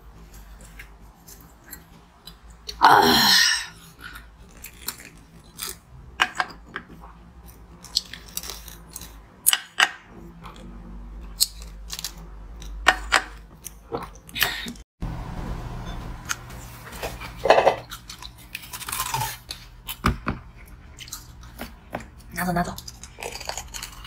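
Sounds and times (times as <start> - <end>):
chewing and crunching ice: 3.7 - 14.8, 17.8 - 20.0, 20.6 - 24.0.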